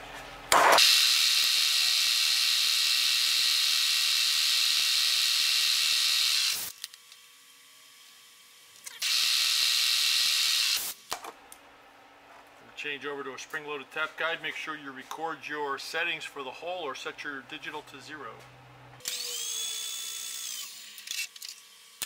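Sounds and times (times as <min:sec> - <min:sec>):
milling machine drill whining: 0:00.8 - 0:06.8, 0:08.9 - 0:10.8, 0:19.0 - 0:21.6.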